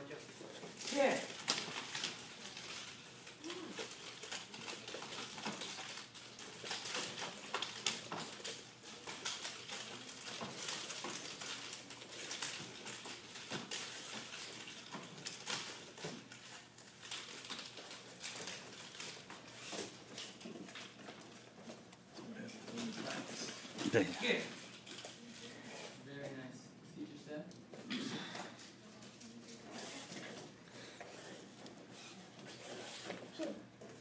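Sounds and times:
nunchaku sticks and chain clacking: 0.4s - 25.9s.

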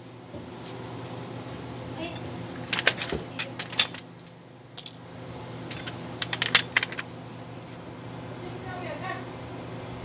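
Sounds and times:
wrench clinking on metal: 5.7s - 7.1s.

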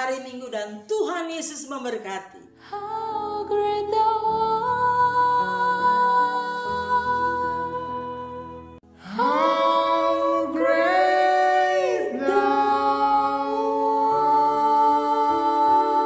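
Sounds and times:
soft backing music: 2.2s - 16.0s.

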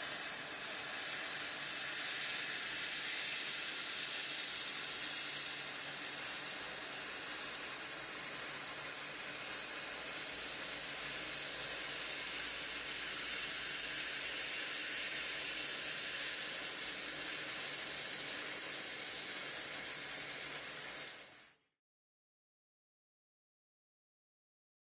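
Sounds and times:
laser cutter gas hiss: 0.0s - 21.6s.

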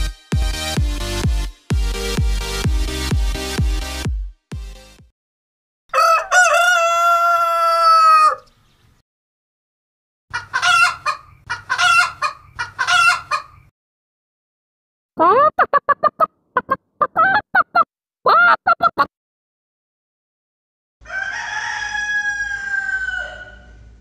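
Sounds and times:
rooster crowing: 5.9s - 8.5s, 21.0s - 23.9s
chickens clucking: 10.3s - 13.7s, 15.2s - 19.1s.

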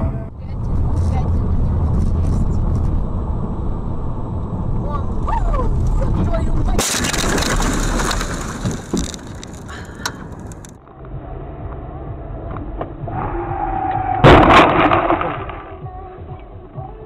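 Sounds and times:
road noise: 0.0s - 17.0s
car crash impact: 6.8s - 10.7s, 14.2s - 15.7s.

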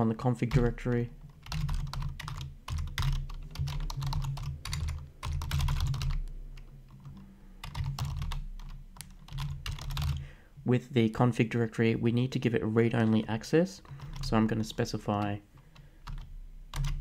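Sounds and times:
computer keyboard typing: 0.4s - 10.2s, 13.8s - 17.0s.

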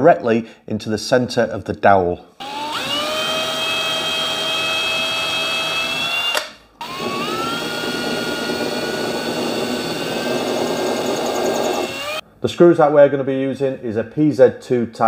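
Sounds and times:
drill motor whine: 2.4s - 12.2s.

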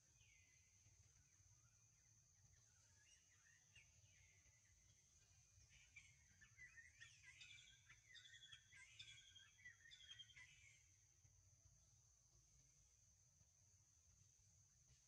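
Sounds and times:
birds chirping: 5.6s - 10.8s.

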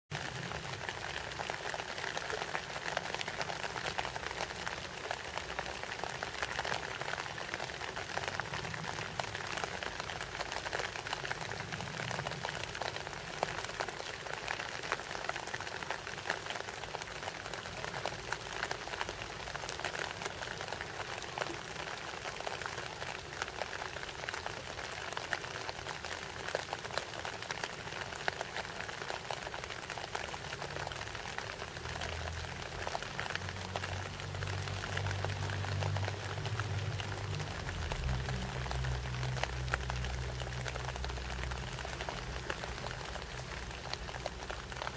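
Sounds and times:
rain falling on leaves: 0.1s - 44.9s.

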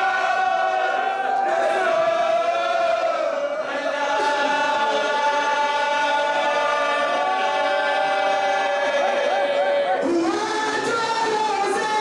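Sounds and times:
lead reciter voice: 8.9s - 12.0s.

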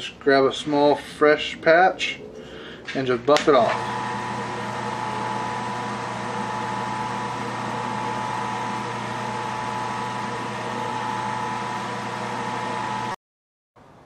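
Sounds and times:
wood lathe motor hum and whine: 3.6s - 13.2s.

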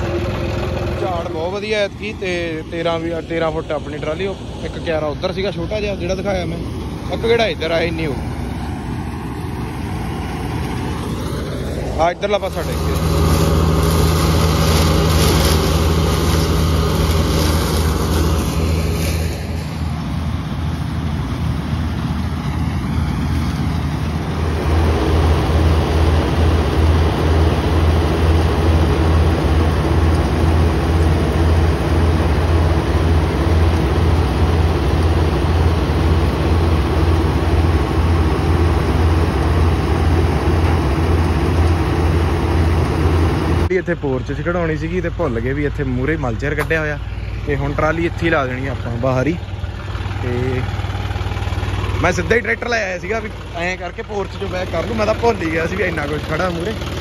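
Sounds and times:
diesel engines droning: 0.0s - 57.0s.

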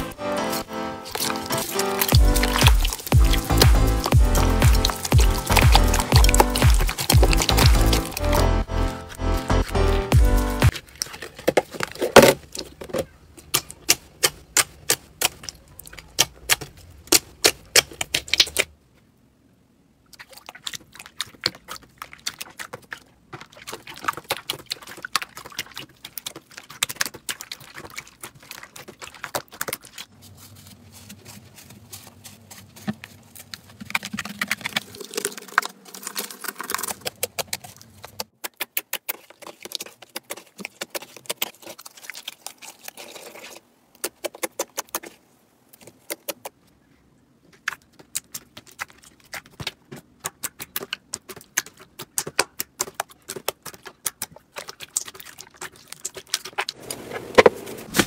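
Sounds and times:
slime clicking and popping: 1.1s - 8.4s.

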